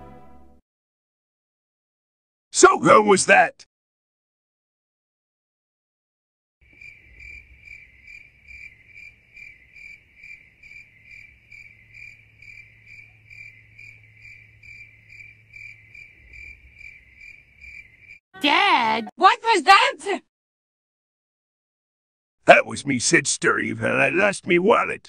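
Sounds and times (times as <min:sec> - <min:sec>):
crickets chirping: 0:06.6 - 0:18.2.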